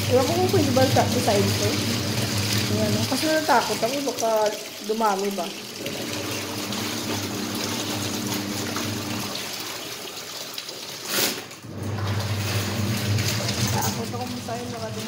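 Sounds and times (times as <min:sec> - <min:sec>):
water running: 0:00.0 - 0:15.0
water rush: 0:00.0 - 0:15.0.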